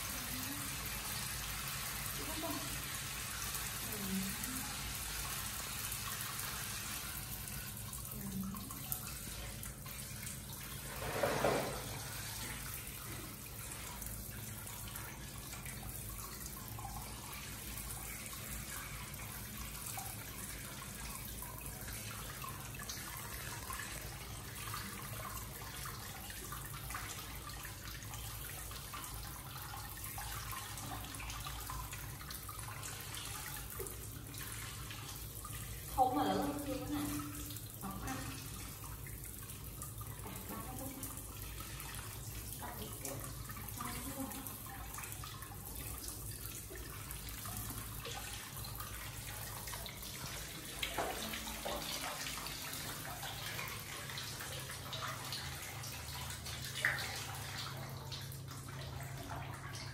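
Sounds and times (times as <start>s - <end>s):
water trickling and splashing: 0.0s - 59.9s
water dripping into plastic tub: 7.4s - 59.9s.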